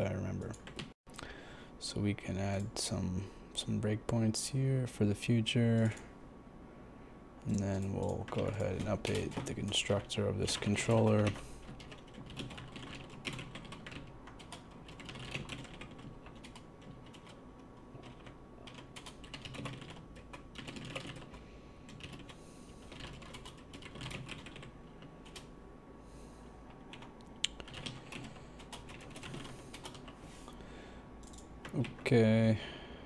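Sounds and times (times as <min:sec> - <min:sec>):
typing on computer keyboard: 0:10.5 - 0:17.4, 0:18.0 - 0:25.5, 0:26.9 - 0:30.2, 0:31.2 - 0:32.0.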